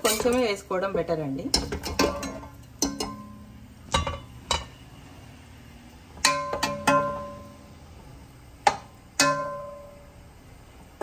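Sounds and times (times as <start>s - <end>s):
metal ladle knocking metal pot: 1.5s - 4.8s, 6.2s - 7.6s, 8.6s - 10.0s.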